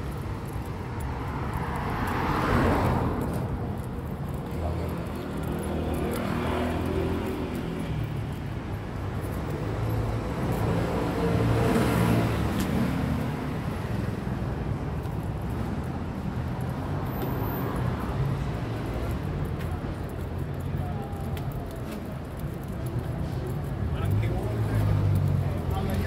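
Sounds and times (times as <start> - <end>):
rumble of traffic: 0.0 - 26.0
car passing: 1.3 - 7.8.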